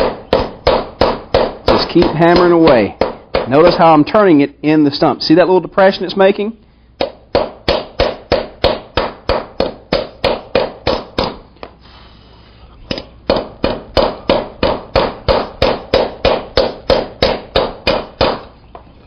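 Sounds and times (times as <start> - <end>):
hammer beating hot iron on wood: 0.0 - 4.1, 7.0 - 11.4, 12.9 - 18.5.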